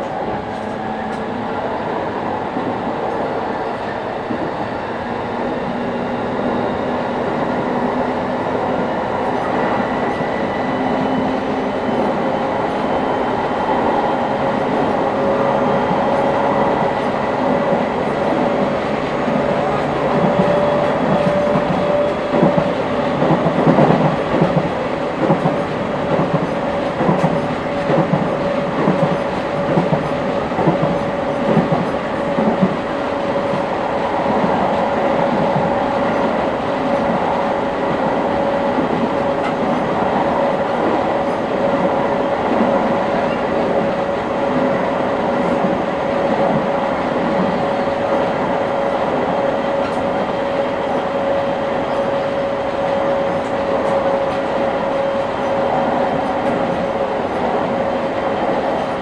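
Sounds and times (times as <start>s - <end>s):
train wheels clacking on rails: 0.0s - 59.0s.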